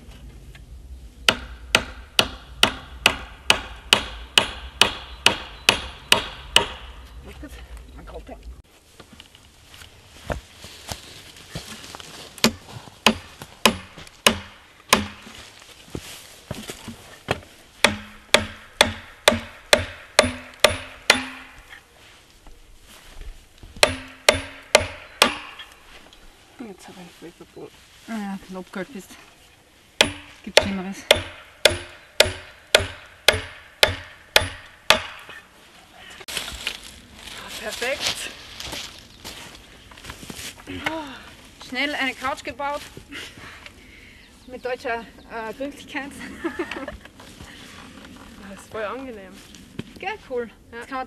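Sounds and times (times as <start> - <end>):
hammer striking nail into wood: 1.3 - 6.9, 12.4 - 15.2, 17.8 - 21.6, 23.8 - 25.6, 30.0 - 35.2.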